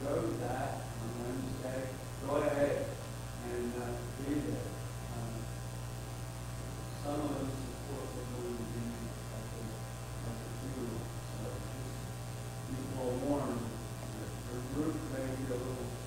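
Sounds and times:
faint voice speaking: 0.0 - 5.5, 6.8 - 12.0
electrical mains hum: 0.0 - 16.0.

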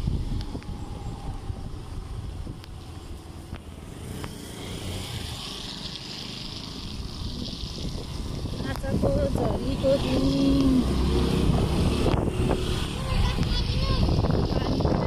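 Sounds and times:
wind on microphone: 0.0 - 3.5, 6.8 - 15.0
motorcycle engine rumble: 0.0 - 15.0
hiss: 4.0 - 8.8.

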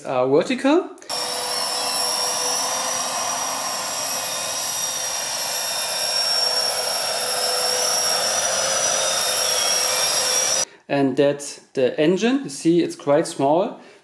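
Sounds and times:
electric fans high whine: 1.1 - 10.6.

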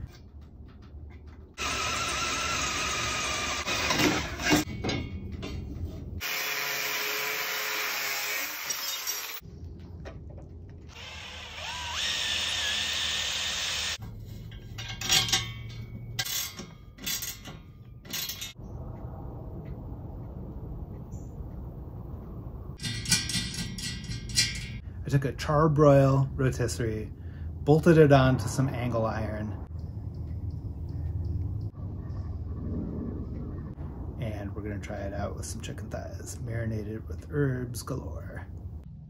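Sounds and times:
angle grinder cutting steel: 1.6 - 4.7, 6.2 - 9.4, 10.9 - 14.0.

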